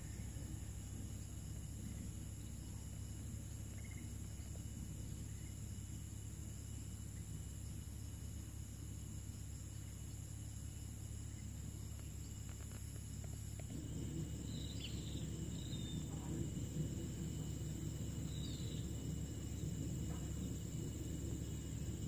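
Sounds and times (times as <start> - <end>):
faint insect hum: 0.0 - 22.0
low rumble: 11.3 - 22.0.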